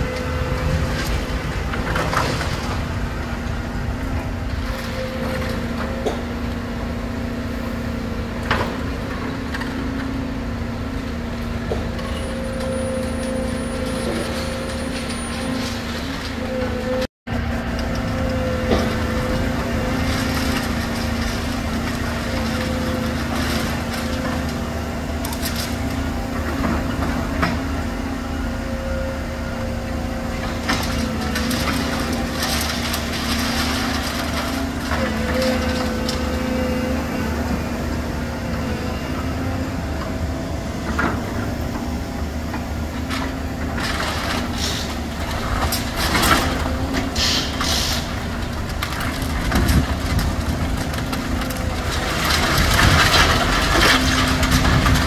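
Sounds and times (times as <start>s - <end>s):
excavator engine and hydraulics: 0.0s - 55.0s
crusher cracking concrete: 48.7s - 55.0s.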